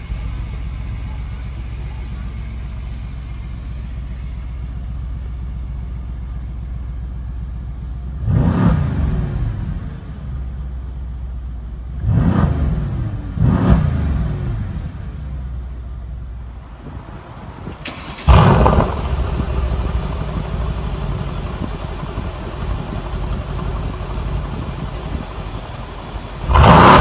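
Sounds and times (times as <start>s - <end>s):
car engine idling: 0.0s - 27.0s
engine revving: 8.2s - 10.1s, 11.9s - 15.2s, 17.9s - 21.8s, 26.3s - 27.0s.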